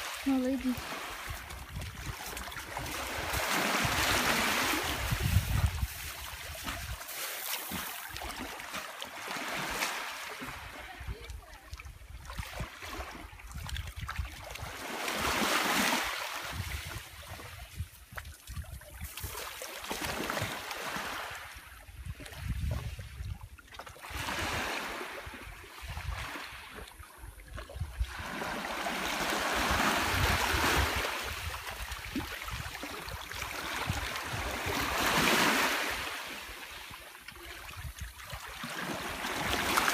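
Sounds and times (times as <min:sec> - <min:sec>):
wind rumbling on microphone: 0:00.0 - 0:08.4, 0:10.4 - 0:19.4, 0:21.5 - 0:36.1, 0:36.8 - 0:39.9
waves washing over pebbles: 0:00.0 - 0:11.2, 0:14.6 - 0:17.2, 0:28.0 - 0:37.0, 0:37.8 - 0:39.9.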